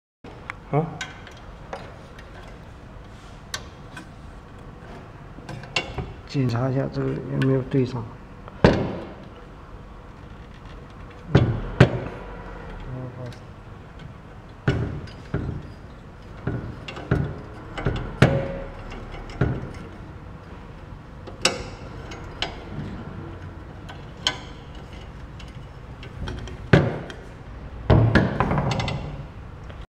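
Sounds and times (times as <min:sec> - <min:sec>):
knocks on metal bike frame: 0:08.6 - 0:09.2, 0:11.3 - 0:12.1, 0:14.6 - 0:15.7, 0:16.4 - 0:19.9, 0:26.2 - 0:27.3, 0:27.9 - 0:29.2.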